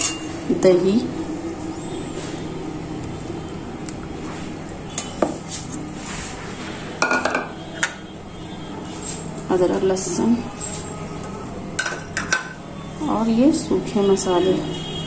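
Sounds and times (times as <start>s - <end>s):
utensils clinking on steel bowl: 0.0s - 0.4s, 7.0s - 8.0s, 11.8s - 12.6s
steady low hum: 0.0s - 15.0s.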